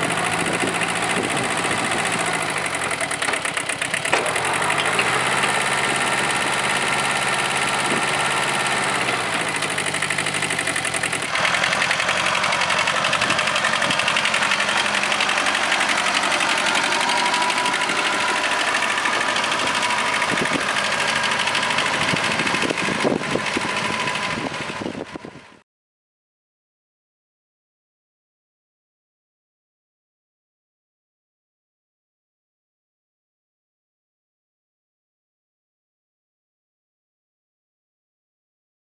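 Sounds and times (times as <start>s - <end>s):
tractor diesel engine running: 0.0s - 25.6s.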